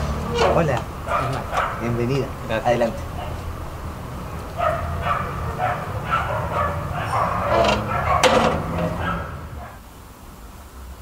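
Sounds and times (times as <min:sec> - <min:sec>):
low outdoor rumble: 0:00.0 - 0:11.0
small dog yapping: 0:01.1 - 0:01.8, 0:04.6 - 0:09.8.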